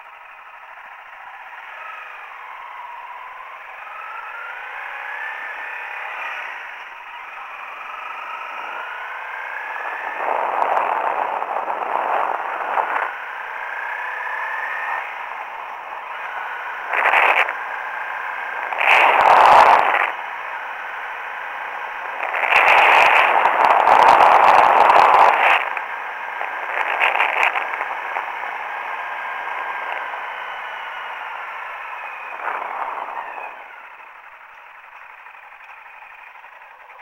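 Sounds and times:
motorcycle engine running: 0:00.0 - 0:37.0
wind rushing on microphone: 0:09.6 - 0:13.2, 0:16.9 - 0:17.6, 0:18.6 - 0:20.2, 0:22.1 - 0:28.3, 0:32.2 - 0:33.6.

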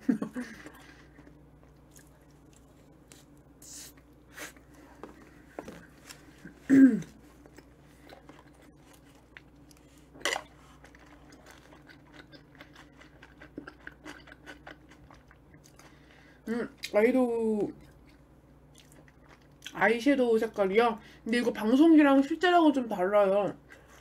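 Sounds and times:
chewing soft sandwich: 0:00.5 - 0:16.1, 0:17.7 - 0:19.8.

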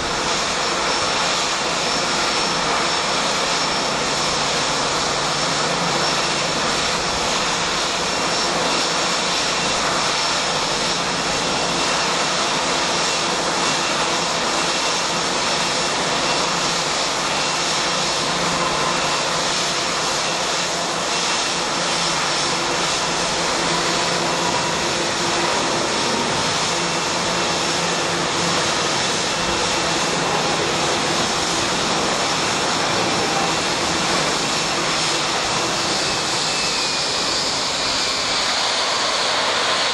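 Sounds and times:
jet engines idling: 0:00.0 - 0:39.9.

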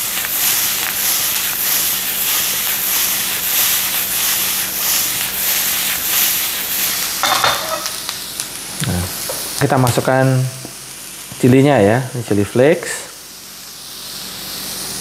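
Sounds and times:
food sizzling in frying pan: 0:00.0 - 0:15.0
pan knocking on burner: 0:07.2 - 0:08.0.

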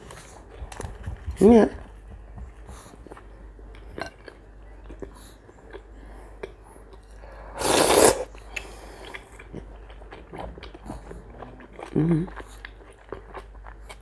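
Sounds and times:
chewing: 0:02.6 - 0:07.3, 0:08.3 - 0:14.0
loud slurp of soup: 0:07.5 - 0:08.3.

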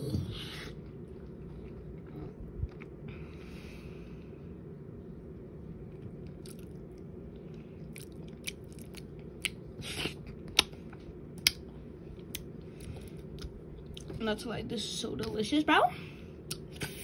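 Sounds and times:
wet chewing: 0:06.2 - 0:07.0, 0:07.9 - 0:10.8.

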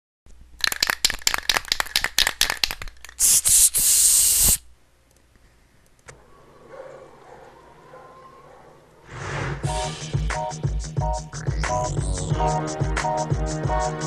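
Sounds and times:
spray can mixing ball rattling: 0:00.6 - 0:04.6
spray paint hissing: 0:02.5 - 0:04.7.

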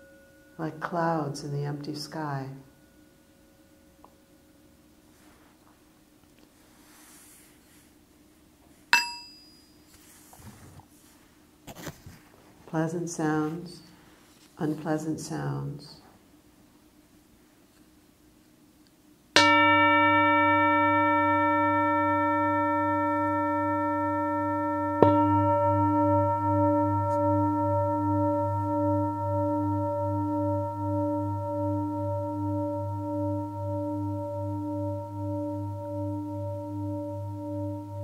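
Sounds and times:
singing bowl ringing: 0:00.0 - 0:04.8, 0:09.0 - 0:10.2, 0:19.4 - 0:38.0.

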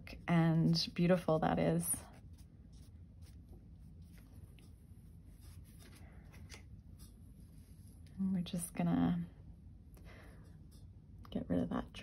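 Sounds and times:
low room hum: 0:00.0 - 0:12.0
brush scratching on paper: 0:01.9 - 0:08.2.

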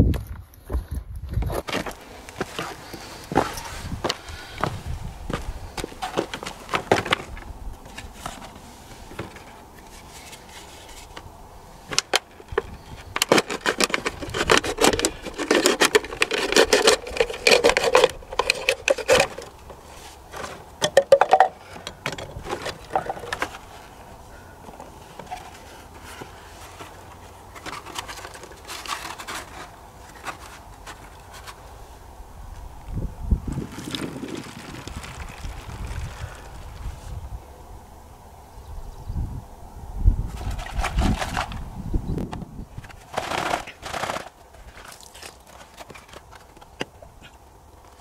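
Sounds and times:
objects knocking and clattering: 0:20.3 - 0:23.6.

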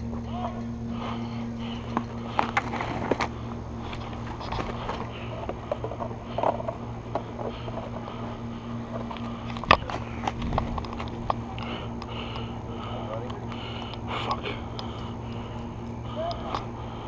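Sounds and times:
steady low hum: 0:00.0 - 0:17.0
gear clicks and knocks: 0:01.8 - 0:08.2, 0:08.8 - 0:12.5.

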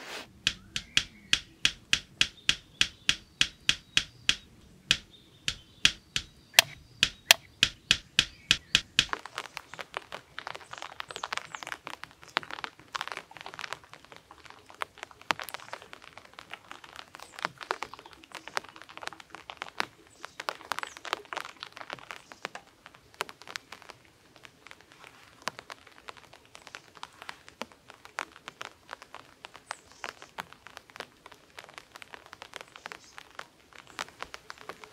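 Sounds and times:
wooden clicks and rustling: 0:00.4 - 0:13.8
hammer driving nails into wood: 0:00.5 - 0:09.1.

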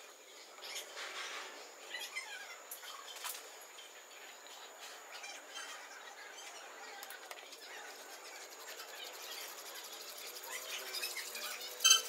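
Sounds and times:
light scratching on foil: 0:07.0 - 0:12.0.

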